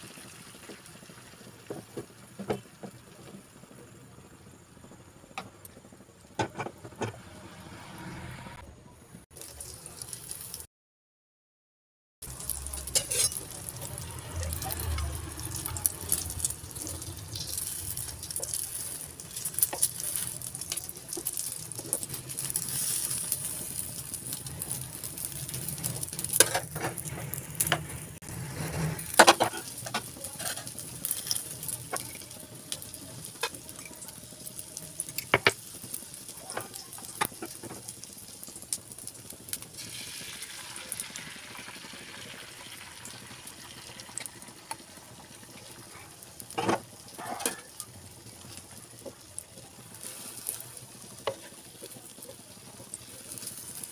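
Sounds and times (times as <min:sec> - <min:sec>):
omelette sizzling in frying pan: 0:00.0 - 0:07.9, 0:09.2 - 0:10.7, 0:12.2 - 0:53.9
spatula scraping and tapping pan: 0:06.4 - 0:07.2, 0:12.9 - 0:13.4, 0:26.3 - 0:28.0, 0:28.6 - 0:32.2.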